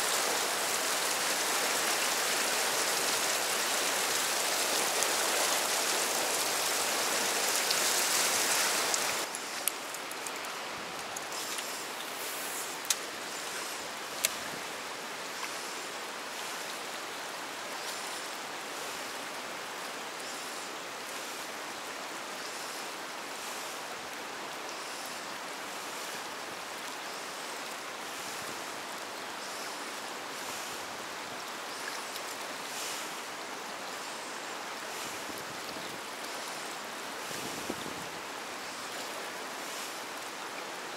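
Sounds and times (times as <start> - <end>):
river rushing over rocks: 0.0 - 22.3.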